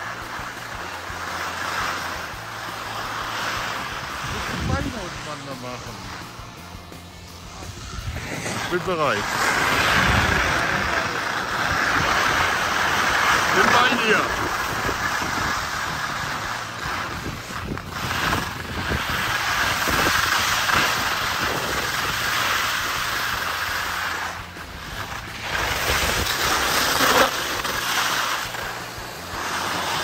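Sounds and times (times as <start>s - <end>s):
wind buffeting microphone: 4.1s - 6.7s, 7.3s - 23.1s.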